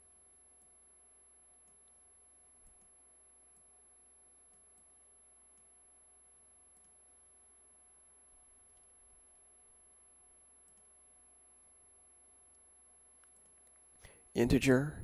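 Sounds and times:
faint electrical hum: 0:00.0 - 0:15.0
computer mouse clicks: 0:01.6 - 0:03.8, 0:04.5 - 0:05.8, 0:06.7 - 0:07.1, 0:08.7 - 0:09.0, 0:10.6 - 0:11.0, 0:12.5 - 0:14.0.

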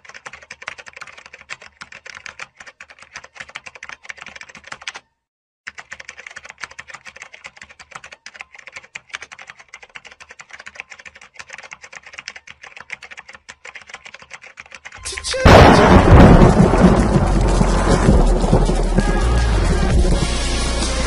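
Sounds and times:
mechanical keyboard typing: 0:00.0 - 0:05.1, 0:05.7 - 0:15.4.

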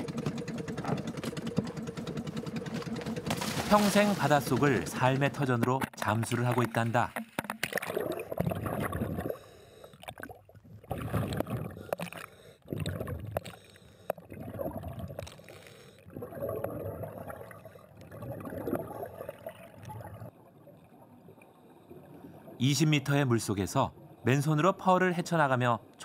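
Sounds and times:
water gurgling underwater: 0:05.8 - 0:09.4, 0:10.0 - 0:13.6, 0:14.2 - 0:15.4, 0:16.1 - 0:21.2.

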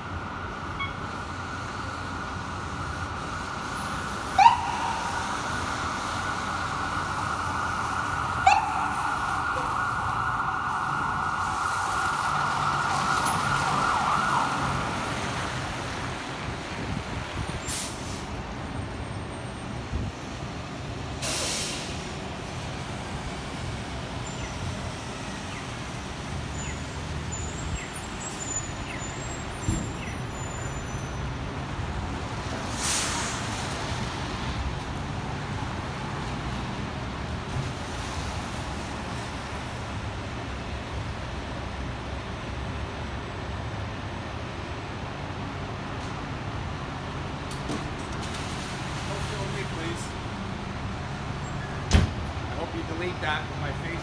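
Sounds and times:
fire truck siren: 0:00.0 - 0:19.4, 0:48.6 - 0:50.4
air brake hisses: 0:21.2 - 0:22.0, 0:32.7 - 0:33.5.

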